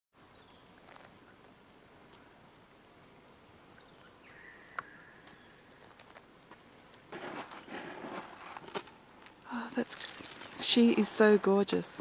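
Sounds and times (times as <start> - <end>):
quiet steady hiss: 0.2 - 12.0
high bird chirps: 8.0 - 10.9.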